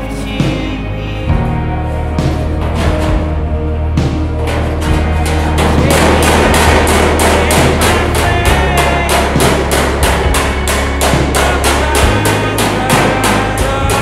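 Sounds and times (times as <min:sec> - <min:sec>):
sustained bass notes: 0:00.0 - 0:14.0
background music with quick beat: 0:00.4 - 0:14.0.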